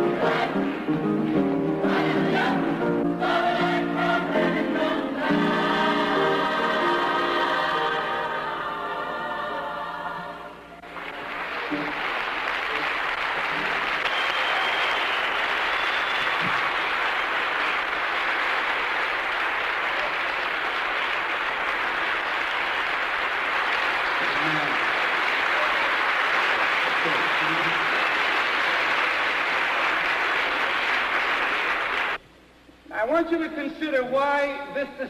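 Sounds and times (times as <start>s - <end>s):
choir singing: 0.0s - 11.0s
audience applause: 10.8s - 32.2s.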